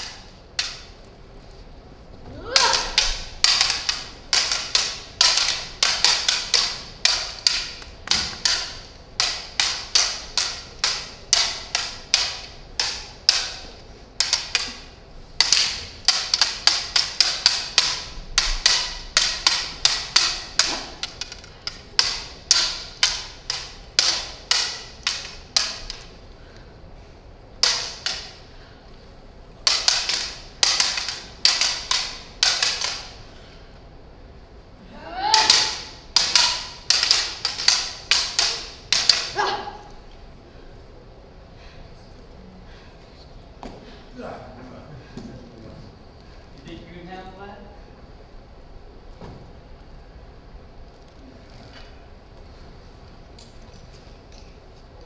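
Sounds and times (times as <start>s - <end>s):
plastic blades clacking: 0.0s - 1.0s, 2.4s - 26.2s, 27.6s - 28.5s, 29.6s - 33.2s, 35.3s - 39.4s.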